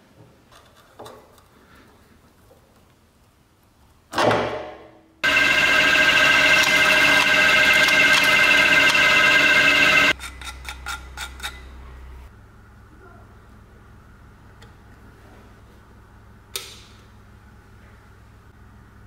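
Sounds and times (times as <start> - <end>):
drill press humming: 5.2 - 10.2.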